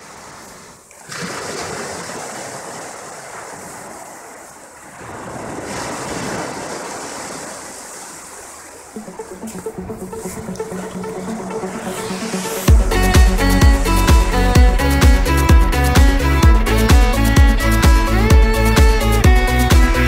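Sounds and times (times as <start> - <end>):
waves washing up beach: 0.0 - 12.7.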